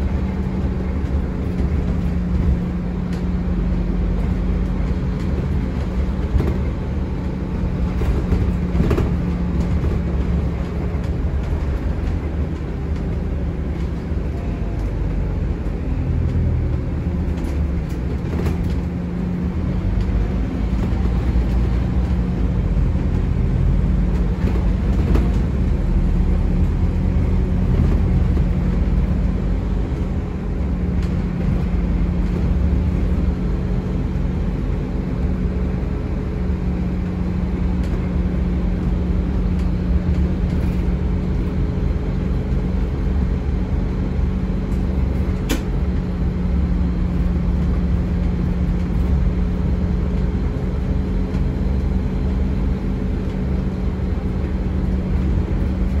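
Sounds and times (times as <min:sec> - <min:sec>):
bus diesel engine droning: 0:00.0 - 0:56.0
road rumble: 0:00.0 - 0:56.0
brief sharp click: 0:45.4 - 0:45.7.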